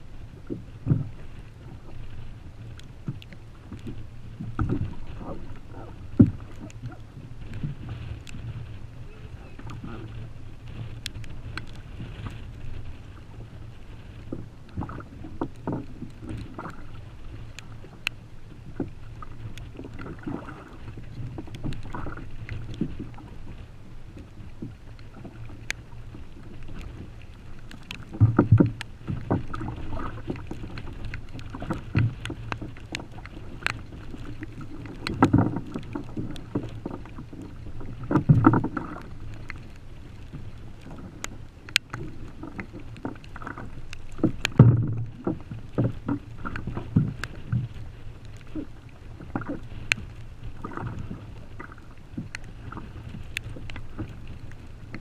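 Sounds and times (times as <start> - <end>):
low rumble of wind and water: 0.0 - 55.0
water slapping against kayak hull: 0.0 - 55.0
clicks and knocks from gear: 27.6 - 47.7.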